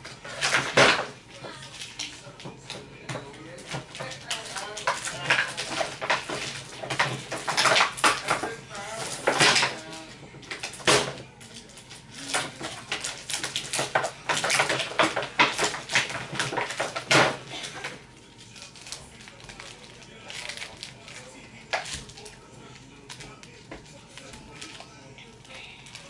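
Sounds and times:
plastic containers clattering: 0.0 - 18.1.

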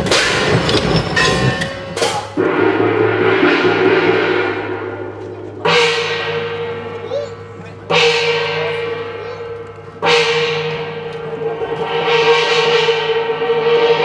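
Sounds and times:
large gong ringing: 0.0 - 14.0
low drum beats: 0.0 - 14.0.

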